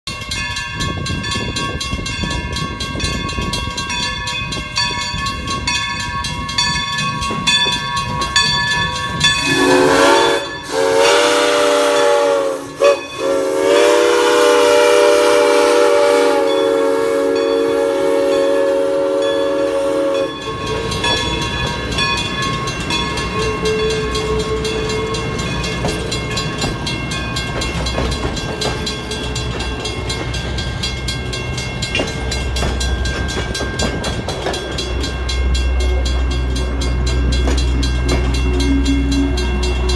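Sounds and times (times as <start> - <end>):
locomotive bell ringing: 0.1 - 39.9
train wheels rumbling on rail: 0.1 - 39.9
steam whistle blowing: 9.4 - 21.5, 23.4 - 25.5.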